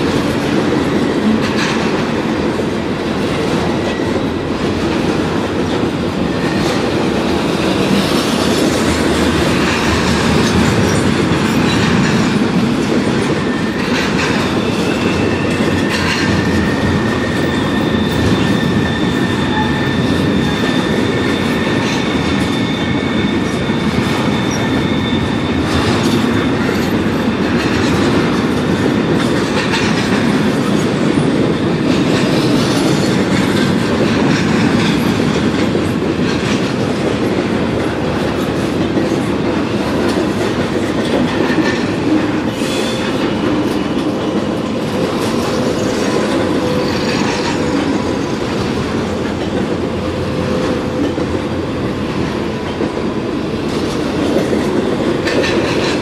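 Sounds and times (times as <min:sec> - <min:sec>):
freight train rumbling and clattering: 0:00.0 - 0:56.0
steady high squeal: 0:13.3 - 0:26.8.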